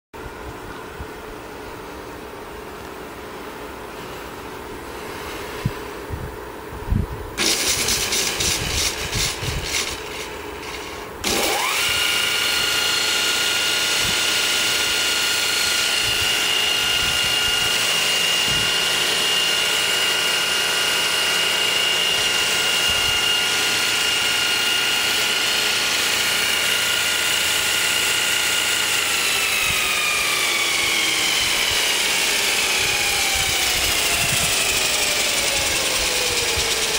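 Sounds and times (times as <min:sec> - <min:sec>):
belt sander motor whining: 0:07.4 - 0:36.9.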